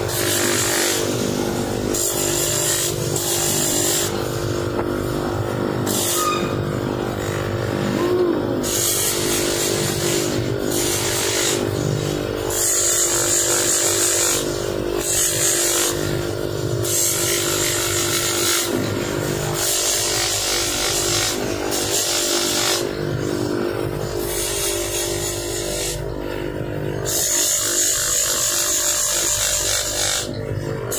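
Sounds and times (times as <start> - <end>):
polishing machine humming: 6.9 - 12.2
hissing grind of metal on wheel: 8.6 - 26.2.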